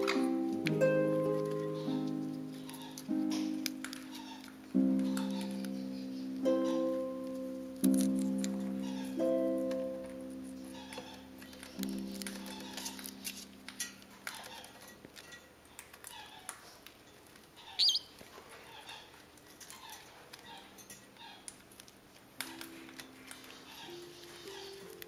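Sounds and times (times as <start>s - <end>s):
parrot squeak: 8.8s - 9.2s, 17.6s - 19.1s.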